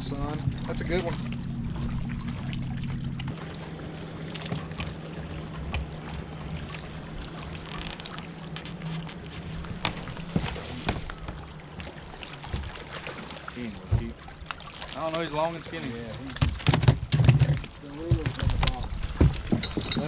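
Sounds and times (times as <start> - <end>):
electric trolling motor humming: 0.0 - 13.0
water lapping: 0.0 - 20.0.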